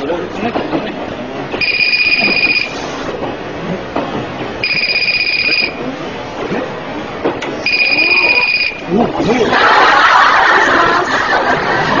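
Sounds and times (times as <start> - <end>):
phone ringing: 1.6 - 2.8, 4.6 - 5.8, 7.6 - 8.9.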